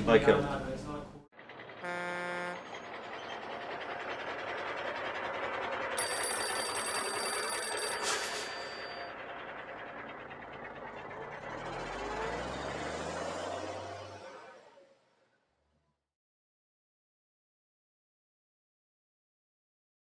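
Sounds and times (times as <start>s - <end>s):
vehicle-like rushing noise: 1.4s - 15.3s
short steady tone: 1.8s - 3.4s, 6.0s - 9.2s
old-style telephone bell ringing: 5.7s - 9.7s.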